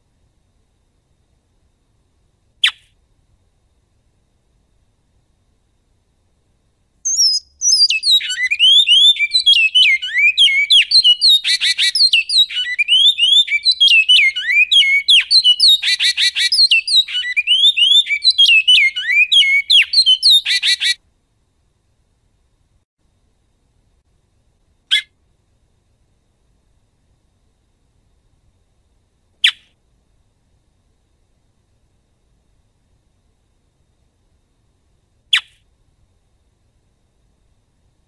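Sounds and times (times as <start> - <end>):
bird singing whistled song: 2.6 - 2.9, 7.0 - 21.0, 29.4 - 29.7, 35.3 - 35.6.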